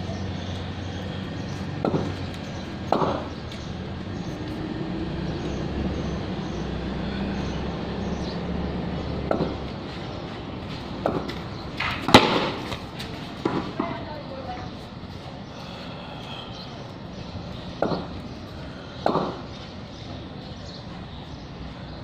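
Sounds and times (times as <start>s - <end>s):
ball bouncing and struck: 1.8s - 2.2s, 2.9s - 3.3s, 9.3s - 9.7s, 11.0s - 12.8s, 13.4s - 14.0s, 17.8s - 18.1s, 19.0s - 19.4s.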